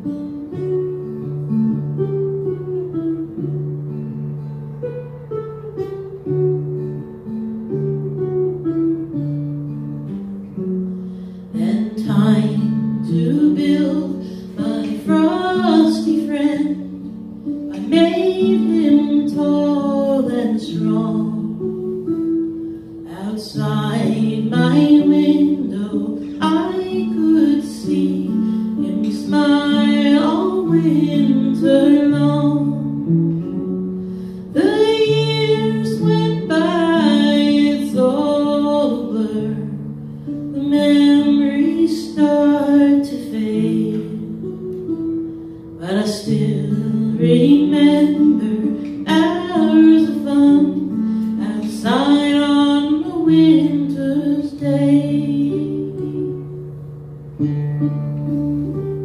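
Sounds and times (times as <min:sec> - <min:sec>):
woman singing: 0:11.5 - 0:56.6.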